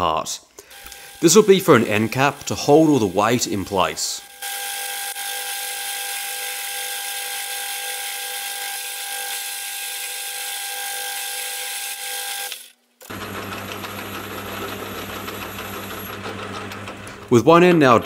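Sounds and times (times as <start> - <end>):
lathe cutting steel with whine: 0.7 - 18.0
lathe running with low hum: 10.7 - 17.4.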